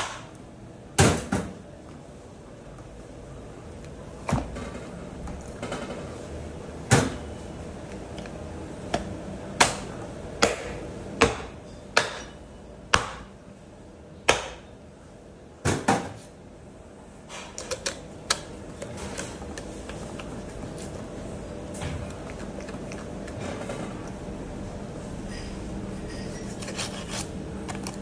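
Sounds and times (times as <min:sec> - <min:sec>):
hatchet chopping on wooden block: 0:13.0 - 0:13.3.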